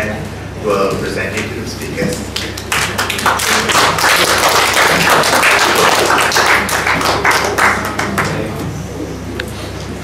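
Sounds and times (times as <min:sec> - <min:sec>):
audience applauding: 0:02.3 - 0:08.5.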